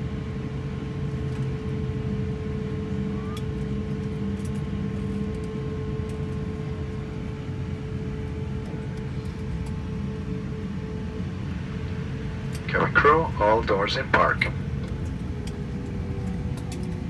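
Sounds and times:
airliner cabin rumble: 0:00.0 - 0:17.0.

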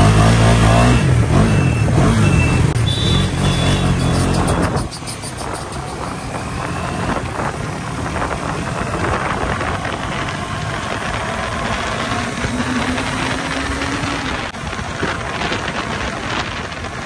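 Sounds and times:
motorcycle engine running: 0:00.0 - 0:17.0
wind rushing over microphone: 0:03.8 - 0:17.0.

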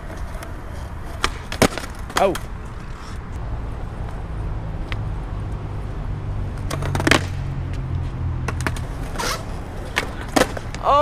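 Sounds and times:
skateboard clacking on ground: 0:00.0 - 0:03.0, 0:06.6 - 0:07.8, 0:08.4 - 0:11.0
skateboard wheels rolling on concrete: 0:00.0 - 0:11.0.

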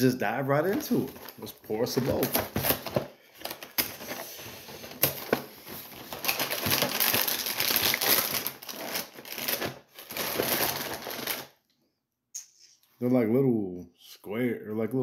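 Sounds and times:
plastic bag crinkling: 0:00.6 - 0:11.6.

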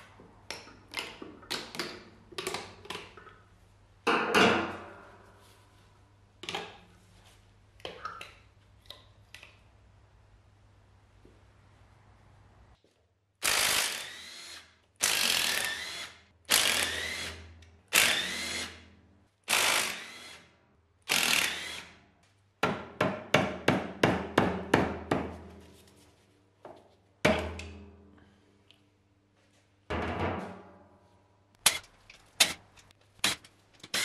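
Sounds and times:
cordless drill motor running: 0:13.5 - 0:17.4, 0:18.0 - 0:18.7, 0:21.1 - 0:21.8.

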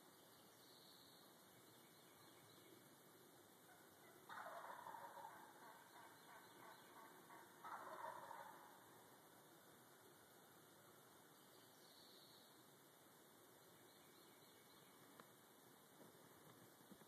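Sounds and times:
turkey gobbling: 0:03.7 - 0:08.9.

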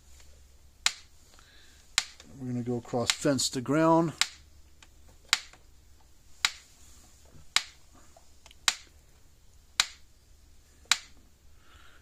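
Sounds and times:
electric fence energizer clicking: 0:04.2 - 0:05.6, 0:08.4 - 0:08.9.

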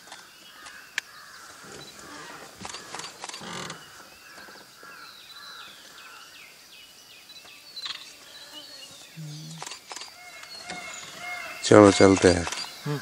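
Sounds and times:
small birds chirping: 0:00.0 - 0:13.0
insect-like hiss: 0:00.1 - 0:13.0
sharp clicks: 0:02.6 - 0:03.8, 0:09.5 - 0:10.9, 0:12.2 - 0:12.8.

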